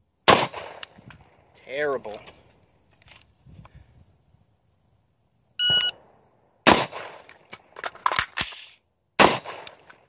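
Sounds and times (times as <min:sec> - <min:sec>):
rifle shot: 0:00.3 - 0:01.0, 0:06.6 - 0:07.4, 0:09.2 - 0:10.0
shot timer beep: 0:05.6 - 0:06.0.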